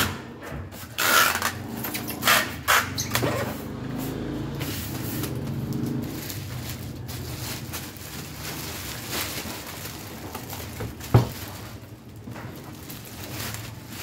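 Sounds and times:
adhesive tape ripping off roll: 1.0 - 3.4.

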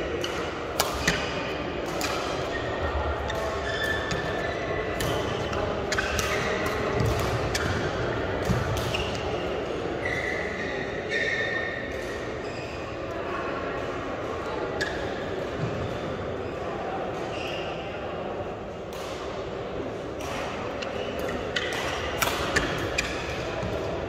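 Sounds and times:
rackets striking shuttlecock: 0.1 - 9.5, 20.1 - 24.0
shoes squeaking on court floor: 2.4 - 7.7, 8.5 - 13.1, 20.8 - 24.0.

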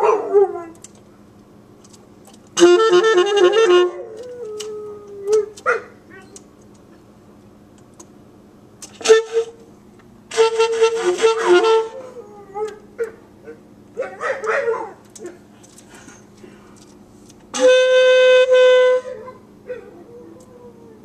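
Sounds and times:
dog howling and yipping: 0.0 - 0.9, 3.9 - 6.4, 12.0 - 15.4, 19.0 - 21.0
saxophone playing: 2.6 - 4.8, 9.0 - 9.6, 10.3 - 12.6, 17.5 - 19.3.

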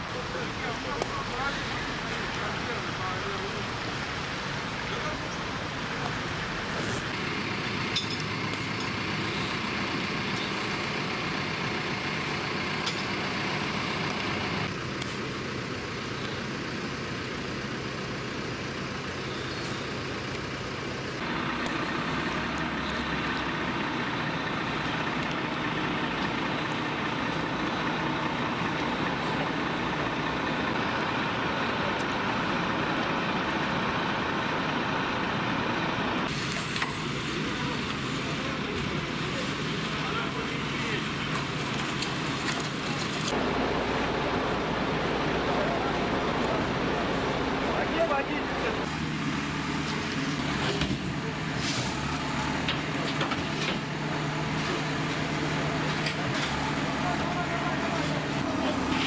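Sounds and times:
vehicle engines idling: 0.0 - 59.0
hiss: 51.4 - 52.2.

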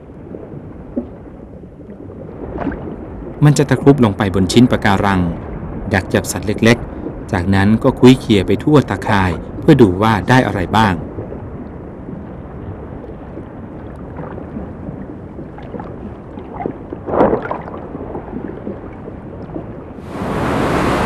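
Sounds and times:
muffled underwater rumble: 0.0 - 21.0
surf breaking on rocks: 15.7 - 18.8, 20.0 - 21.0.

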